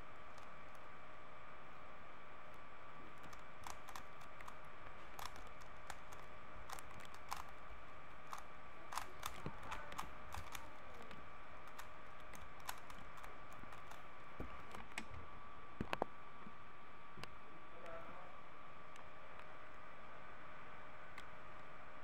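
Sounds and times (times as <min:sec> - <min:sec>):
puzzle cube clicking: 0:05.2 - 0:07.6, 0:08.3 - 0:11.0, 0:11.7 - 0:14.0.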